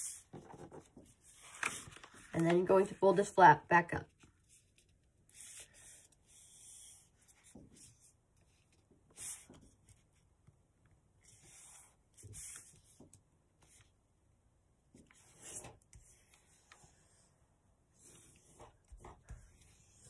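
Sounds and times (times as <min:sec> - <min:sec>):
paper being folded and pressed: 0:00.1 - 0:02.9.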